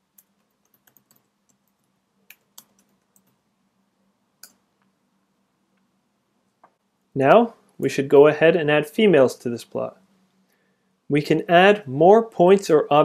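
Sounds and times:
computer keyboard typing: 0.0 - 3.4.

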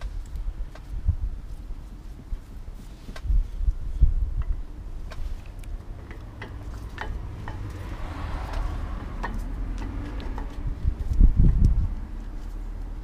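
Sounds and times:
light metallic clicks and taps: 4.4 - 12.5.

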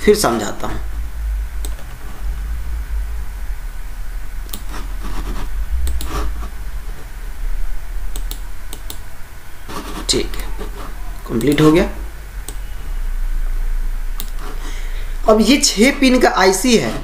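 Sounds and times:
steady low hum: 0.0 - 17.0
computer mouse clicks: 1.6 - 1.9, 4.5 - 4.8, 5.8 - 6.3, 8.1 - 9.0, 12.4 - 12.6, 14.2 - 14.6.

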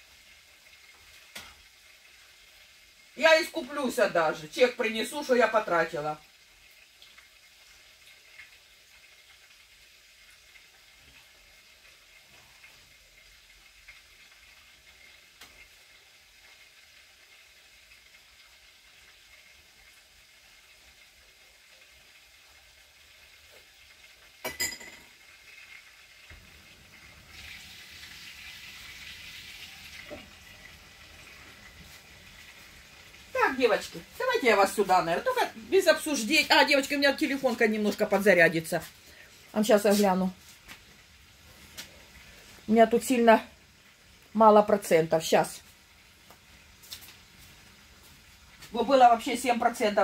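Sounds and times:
food sizzling in a frying pan: 0.0 - 50.0.

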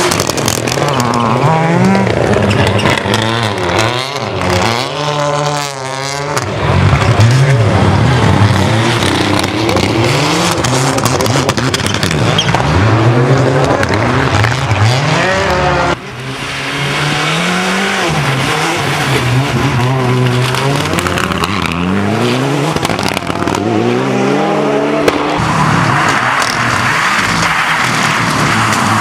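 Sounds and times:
rally car engines revving: 0.0 - 29.0.

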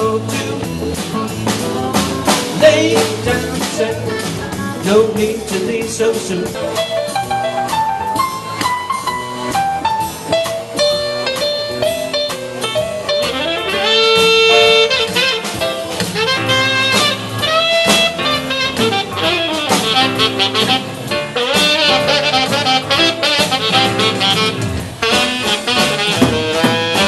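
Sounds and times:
drum kit playing: 0.0 - 27.0
saxophone solo: 6.7 - 27.0.

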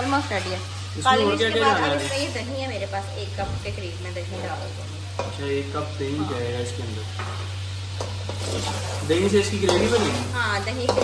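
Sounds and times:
chicken sizzling in a pan: 0.0 - 11.0.

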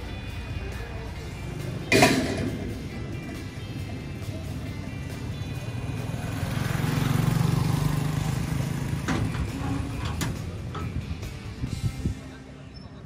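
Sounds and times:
small motorcycle engine passing: 3.1 - 11.3.

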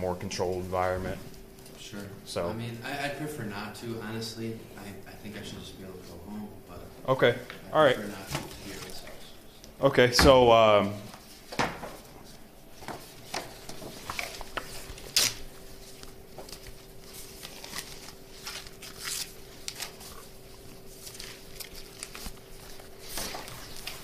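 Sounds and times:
faint steady hum: 0.0 - 24.0
paper rustling: 8.0 - 9.2, 10.9 - 24.0.

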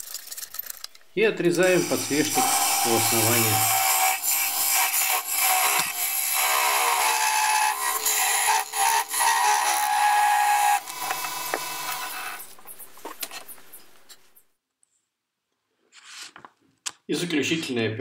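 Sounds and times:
lathe tool scraping wood: 1.6 - 12.6.

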